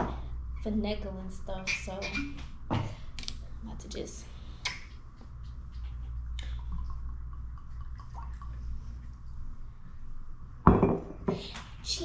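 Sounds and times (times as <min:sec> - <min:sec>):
glugging drips: 0:06.3 - 0:09.5.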